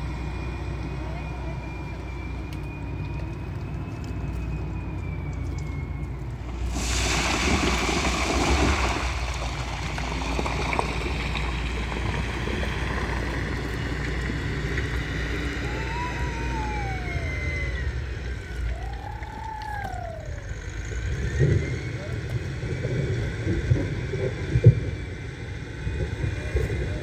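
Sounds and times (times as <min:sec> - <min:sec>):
steady low rumble: 0:02.4 - 0:27.0
short rising and falling whistles: 0:15.3 - 0:22.2.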